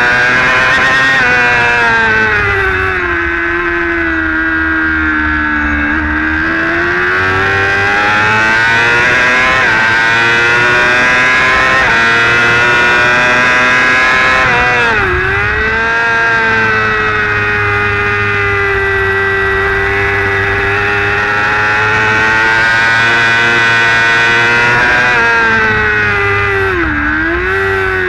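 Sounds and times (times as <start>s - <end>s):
motorcycle engine at high revs: 0.0s - 28.0s.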